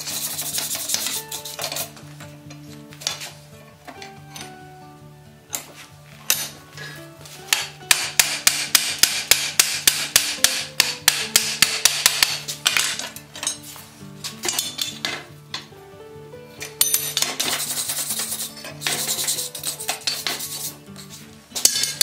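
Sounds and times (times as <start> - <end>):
wire brush scraping iron: 0.0 - 2.0, 17.2 - 22.0
background music: 0.0 - 22.0.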